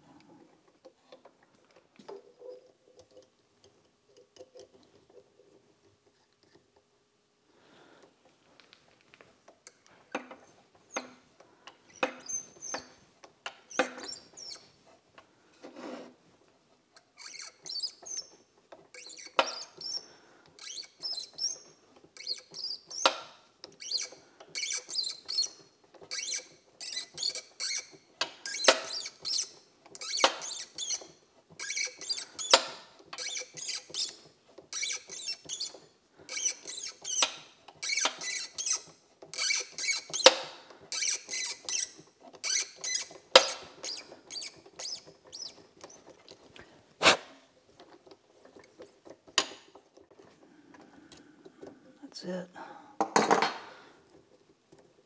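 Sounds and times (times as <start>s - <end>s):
tap squeaking cutting threads: 10.1s - 14.7s, 16.9s - 47.2s.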